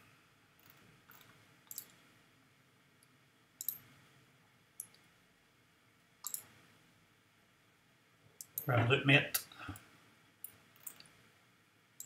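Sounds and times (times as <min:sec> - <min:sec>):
computer mouse clicks: 0:00.6 - 0:02.0, 0:03.6 - 0:03.9, 0:04.8 - 0:05.0, 0:06.2 - 0:06.5, 0:08.4 - 0:08.7, 0:09.4 - 0:11.2.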